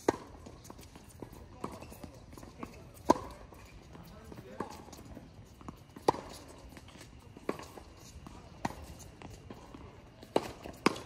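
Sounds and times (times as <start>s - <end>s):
tennis ball struck by rackets: 0.0s - 1.8s, 2.6s - 3.4s, 6.0s - 11.0s
tennis ball bouncing: 0.0s - 11.0s.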